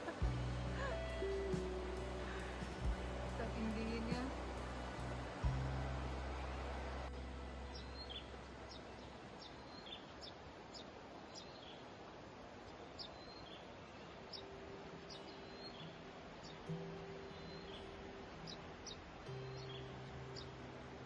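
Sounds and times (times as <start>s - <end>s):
faint ambient hiss: 0.0s - 21.0s
small bird chirping: 7.7s - 11.9s, 12.6s - 16.7s.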